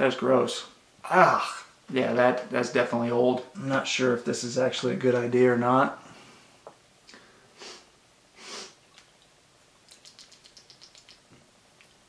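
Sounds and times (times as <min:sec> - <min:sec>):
man sniffing: 0:07.6 - 0:08.8.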